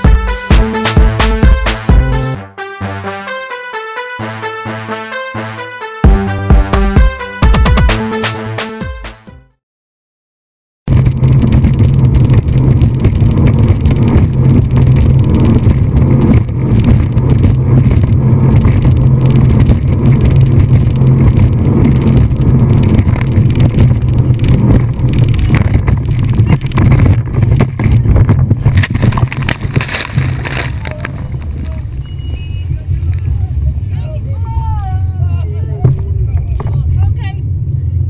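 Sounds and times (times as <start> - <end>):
wind noise: 10.9 - 38.0
speedboat engine drone: 11.4 - 26.3.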